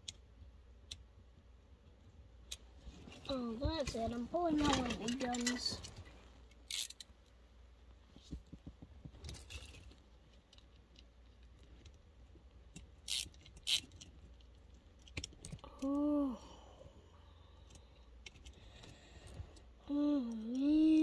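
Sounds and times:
person humming: 15.6 - 16.6, 19.8 - 21.0.

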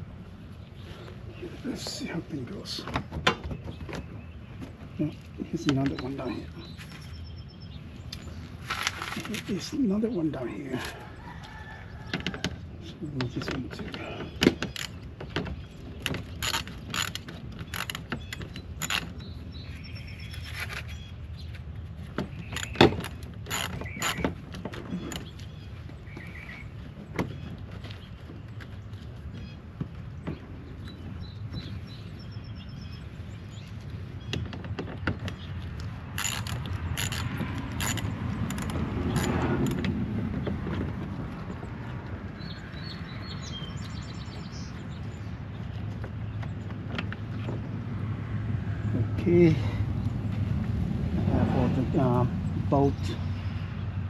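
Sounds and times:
hand ratchet clicking: 18.8 - 19.1, 36.2 - 39.8.

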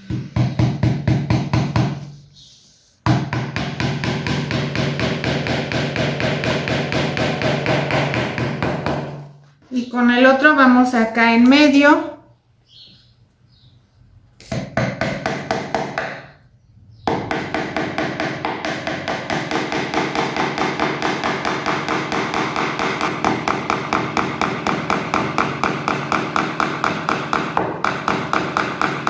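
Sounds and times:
hammer tapping a nail into wood: 3.1 - 9.2, 14.4 - 16.2, 17.1 - 29.0.

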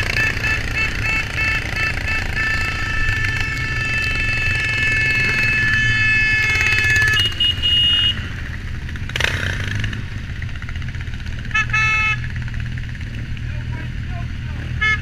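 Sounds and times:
held horn note: 0.0 - 8.3
short higher horn beeps: 0.0 - 8.3, 11.5 - 12.3, 14.7 - 15.0
motorcycle engines at low speed: 0.0 - 15.0.

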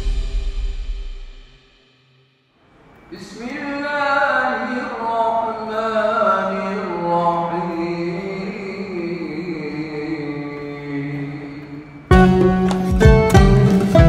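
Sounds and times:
man chanting: 3.1 - 12.1.

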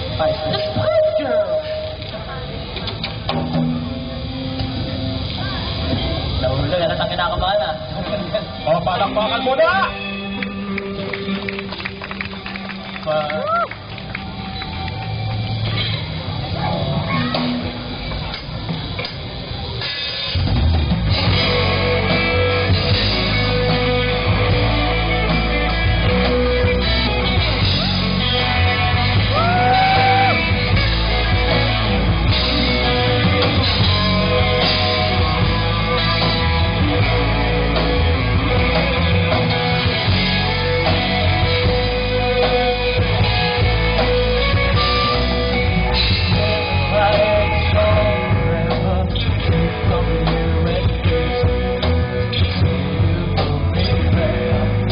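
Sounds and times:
rock band playing: 0.0 - 54.9
person singing: 46.3 - 54.9.

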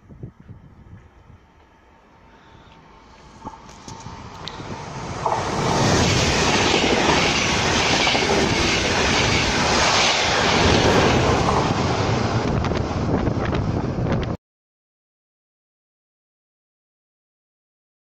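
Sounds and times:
train rushing past: 0.9 - 14.4.

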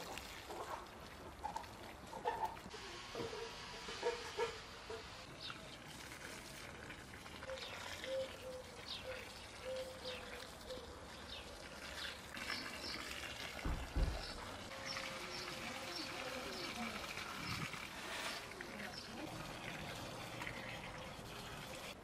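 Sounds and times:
hose water splashing on soil: 0.0 - 22.0
birds chirping: 7.4 - 21.8.

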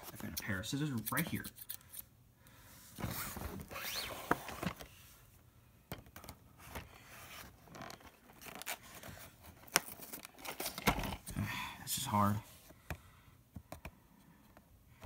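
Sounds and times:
cardboard scraping and rustling: 2.9 - 5.0.

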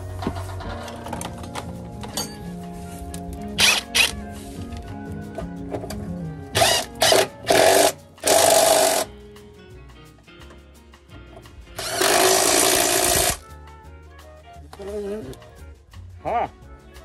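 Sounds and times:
background music: 0.0 - 17.0
power tool whining and rasping: 6.6 - 9.1, 11.8 - 13.4.

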